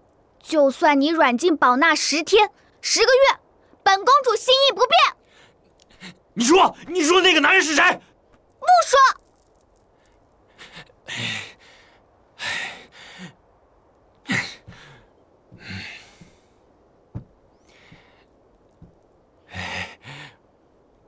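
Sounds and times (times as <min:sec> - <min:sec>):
person sighing and huffing: 0:10.5 - 0:13.5, 0:14.2 - 0:16.5, 0:19.5 - 0:20.4.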